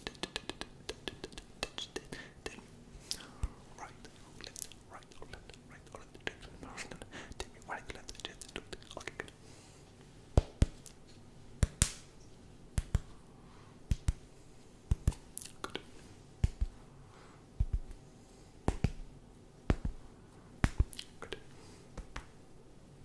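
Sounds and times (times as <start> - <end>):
finger snaps: 0.0 - 3.6, 10.4 - 11.0, 11.6 - 12.1, 12.8 - 13.2, 13.9 - 14.3, 14.9 - 16.8, 17.6 - 18.0, 18.6 - 19.1, 20.6 - 22.4
hand swishing: 14.9 - 16.8, 21.9 - 22.4.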